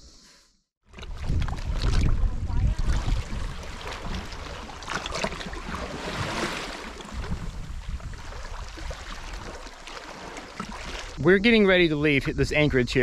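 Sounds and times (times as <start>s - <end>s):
wind rumbling on microphone: 0.9s - 9.7s
small waves washing on rocks: 1.3s - 11.2s.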